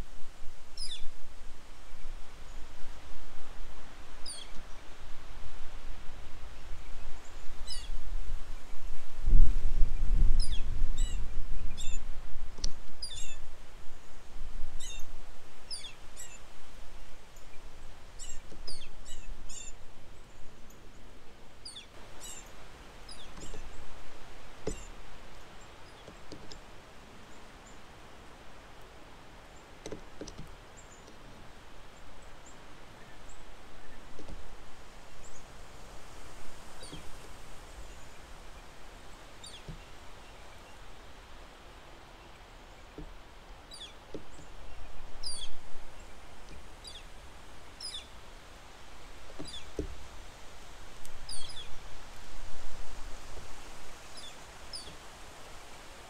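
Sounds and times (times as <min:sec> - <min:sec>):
wind rumbling on microphone: 0:00.0 - 0:56.0
small birds chirping: 0:00.7 - 0:01.1, 0:04.0 - 0:05.0, 0:09.9 - 0:35.7, 0:36.5 - 0:52.0, 0:53.7 - 0:55.1.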